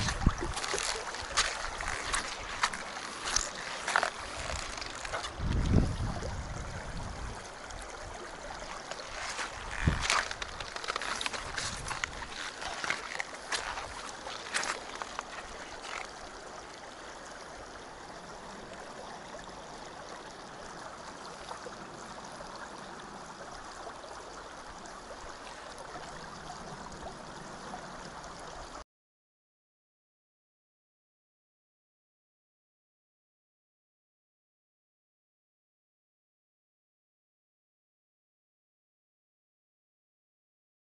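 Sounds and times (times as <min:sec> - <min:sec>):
stony river flowing: 0:00.0 - 0:28.8.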